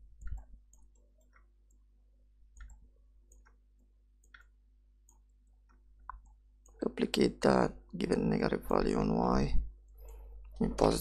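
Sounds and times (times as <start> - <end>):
low steady hum: 0.0 - 11.0
faint computer mouse clicks: 2.5 - 3.6.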